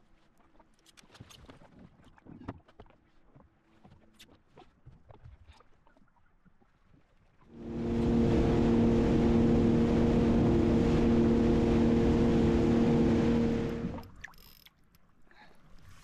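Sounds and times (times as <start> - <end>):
motor running steadily: 7.6 - 14.1.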